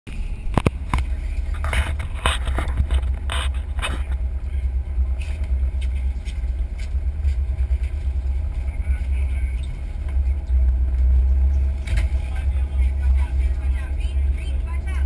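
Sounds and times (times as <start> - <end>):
low rumble on boat: 0.1 - 15.0.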